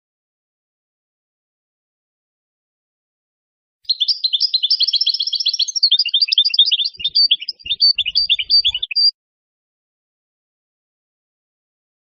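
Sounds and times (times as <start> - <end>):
goldfinch twittering song: 3.9 - 9.1.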